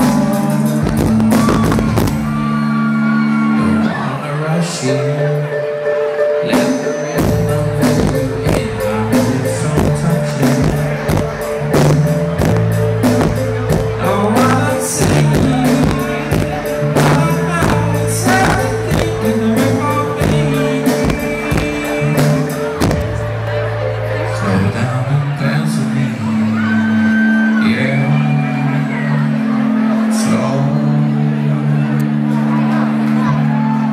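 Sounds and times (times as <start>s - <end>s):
drum hits: 0.0s - 2.5s, 6.6s - 23.5s
low keyboard bass notes: 0.0s - 33.9s
person singing: 0.0s - 33.9s.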